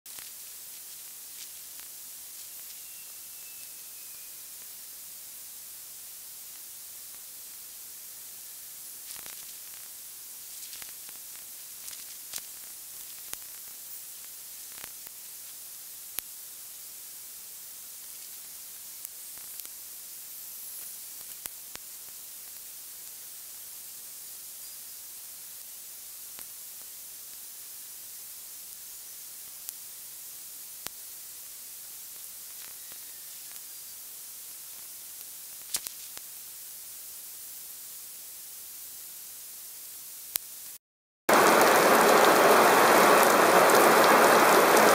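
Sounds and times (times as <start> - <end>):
static hiss: 0.0 - 44.9
faint clicks and crackles: 0.1 - 3.2, 9.0 - 16.8, 17.9 - 19.8, 20.8 - 23.2, 34.5 - 36.4.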